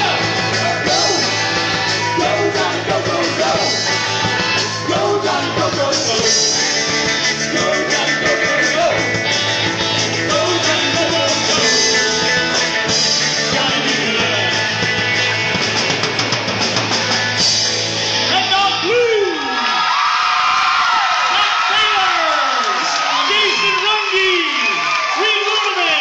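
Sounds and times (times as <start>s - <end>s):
person singing: 0.0s - 4.0s, 4.6s - 9.1s, 10.2s - 12.6s, 13.3s - 14.8s
crowd cheering: 0.0s - 12.5s, 15.2s - 26.0s
electric guitar: 0.0s - 18.9s
drums: 0.0s - 26.0s.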